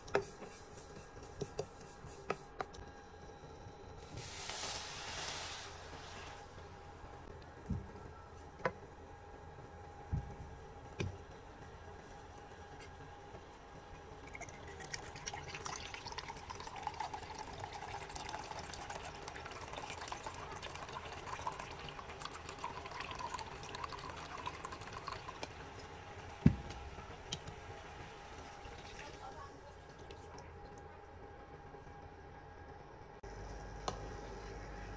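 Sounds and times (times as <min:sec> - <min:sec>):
liquid pouring into container: 0:14.2 - 0:27.4.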